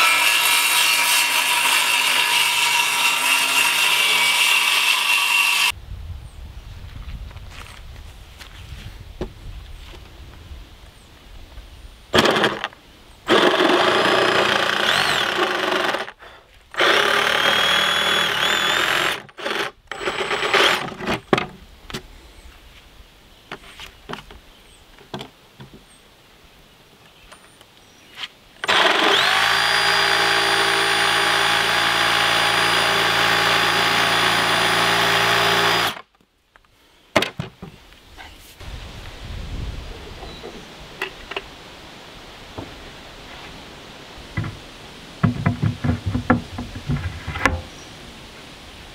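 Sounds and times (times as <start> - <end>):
jigsaw cutting plywood: 0.0 - 5.7, 13.3 - 16.1, 16.8 - 20.9, 28.6 - 36.0.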